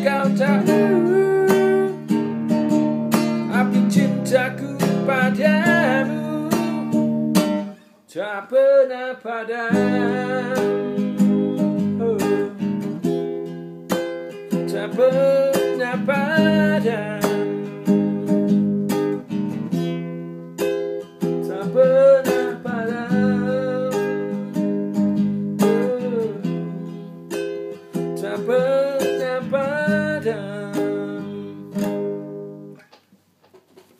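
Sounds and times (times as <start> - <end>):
man singing without words: 0.0 - 2.3, 3.4 - 7.2, 8.1 - 12.8, 14.5 - 18.4, 21.4 - 27.1, 28.1 - 31.8
acoustic guitar playing: 0.0 - 33.7.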